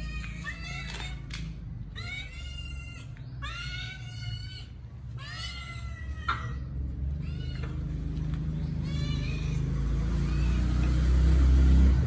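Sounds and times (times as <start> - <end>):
kitten meowing: 8.7 - 10.7.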